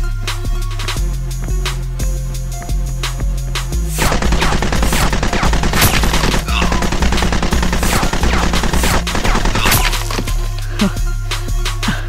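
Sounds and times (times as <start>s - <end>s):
background music with bass line: 0.0s - 12.0s
rapid automatic gunfire: 4.0s - 10.4s.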